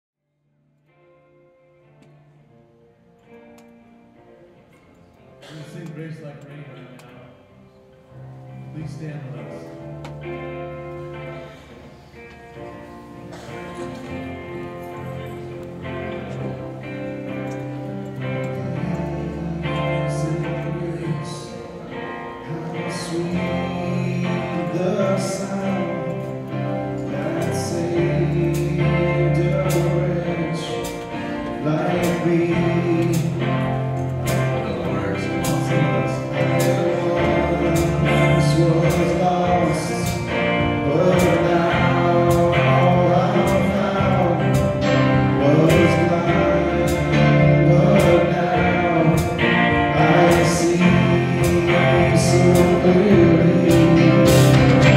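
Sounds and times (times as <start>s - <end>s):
keyboard: 0.5s - 54.9s
acoustic guitar: 7.8s - 54.9s
sustained bass notes: 8.2s - 54.9s
person singing: 13.5s - 54.9s.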